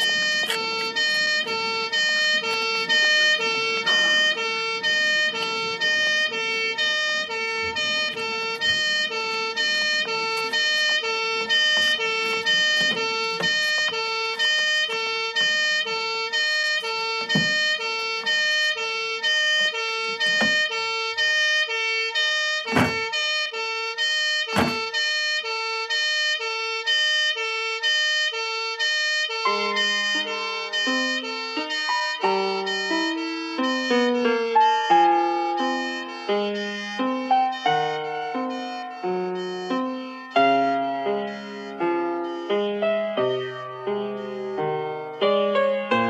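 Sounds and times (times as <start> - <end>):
sharp knocks: 0.0 - 15.9, 16.6 - 18.6, 19.5 - 21.4, 22.6 - 23.3, 24.4 - 24.9
music with repeated pulsing note: 29.3 - 44.4.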